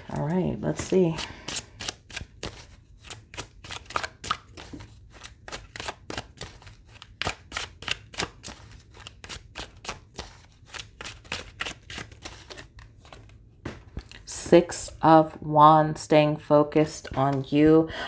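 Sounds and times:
cards being shuffled: 0.7 - 14.1.

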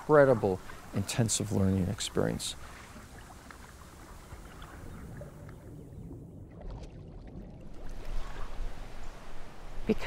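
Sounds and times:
water lapping against hulls: 0.0 - 9.6
canoe paddles dipping: 0.0 - 10.0
faint drips and ticks: 0.6 - 5.8.

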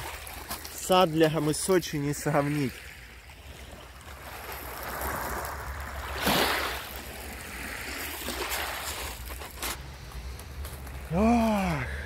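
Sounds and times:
stream water rushing: 0.0 - 9.6.

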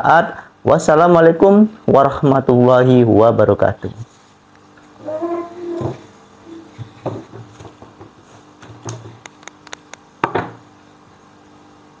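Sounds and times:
wooden knocks: 5.7 - 6.1, 6.8 - 8.1.

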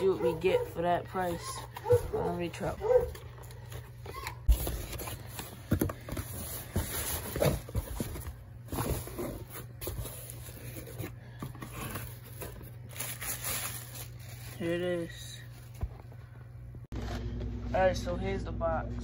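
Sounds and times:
cardboard flaps rustling: 1.2 - 15.0.

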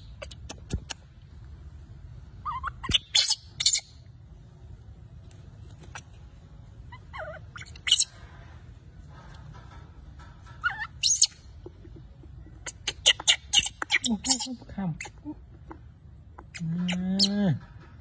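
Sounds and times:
monkey clicks: 0.2 - 1.2
baby monkey squeaking: 2.4 - 4.1, 6.8 - 8.2, 10.5 - 17.6.

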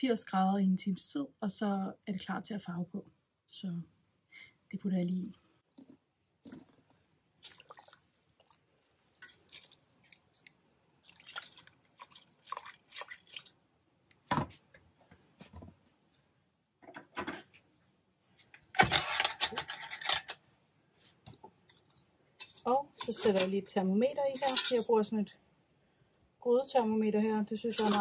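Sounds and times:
wet yarn splashing and squishing: 6.4 - 14.2.

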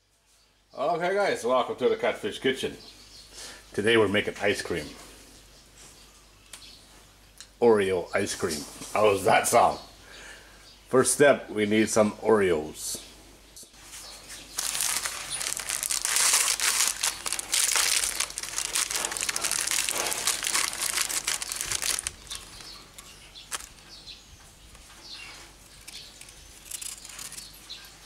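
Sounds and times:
plastic wrapper crinkling: 14.5 - 23.9.

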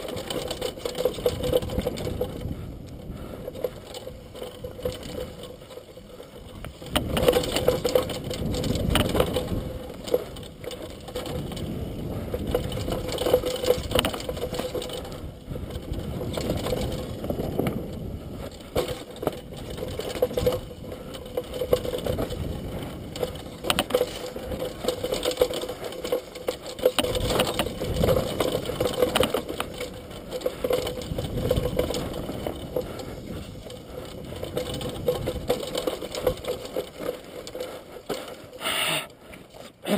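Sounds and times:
bike rattling on rough trail: 0.0 - 39.9
bike knocking over bumps: 3.2 - 15.2.

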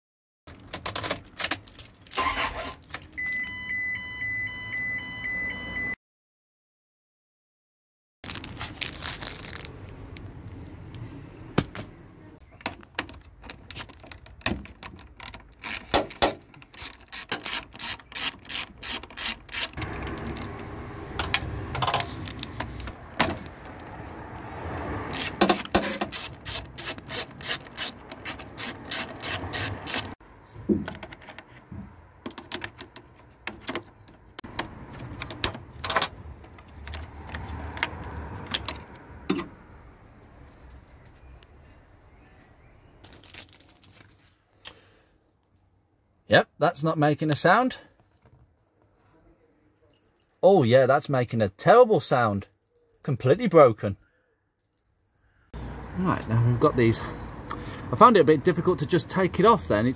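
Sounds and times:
socket ratchet clicking: 14.9 - 20.6, 25.1 - 30.2.

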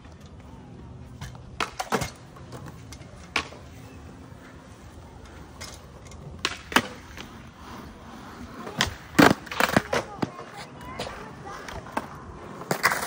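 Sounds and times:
skateboard clacks on concrete: 6.2 - 7.4, 8.5 - 13.0.

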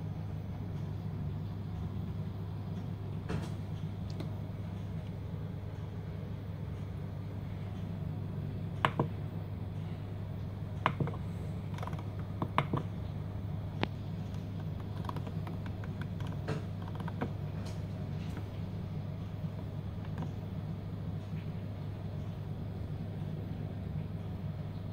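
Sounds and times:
steady low hum: 0.0 - 24.9.

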